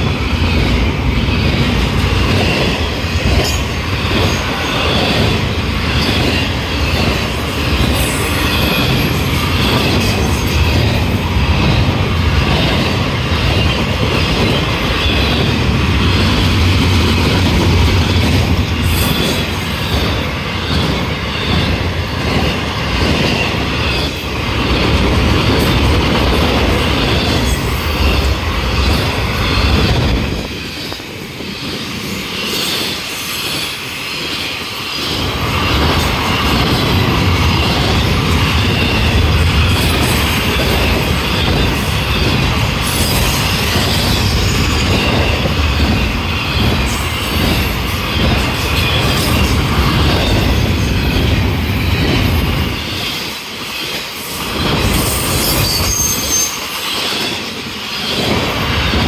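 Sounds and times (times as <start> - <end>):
freight train wheels rumbling on rail: 0.0 - 59.0
wheel squeal: 54.6 - 57.2.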